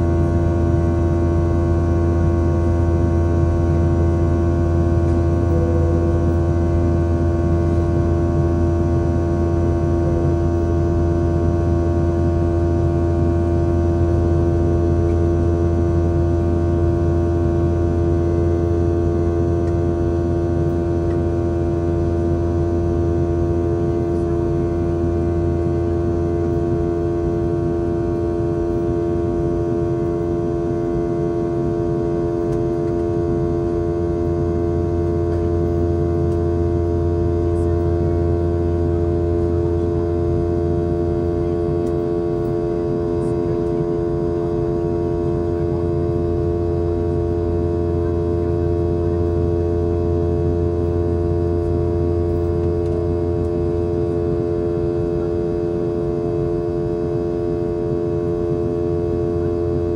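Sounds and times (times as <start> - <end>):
jet engine drone in cabin: 0.0 - 59.9.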